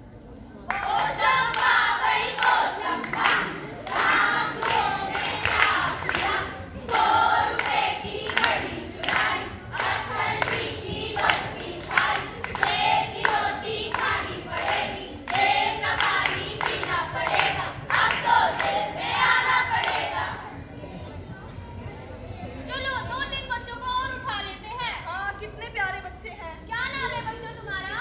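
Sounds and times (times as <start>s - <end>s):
rhythmic hand claps: 0.7s - 20.5s.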